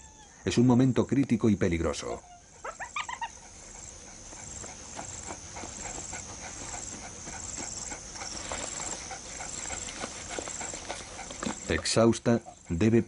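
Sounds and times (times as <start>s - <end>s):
cheetah panting: 2.6s - 13.0s.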